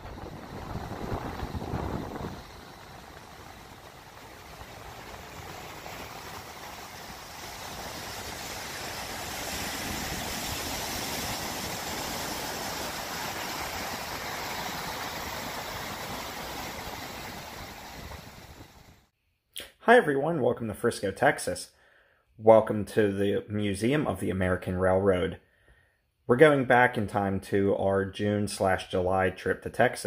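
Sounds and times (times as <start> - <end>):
ocean surf breaking on a beach: 0.0 - 19.1.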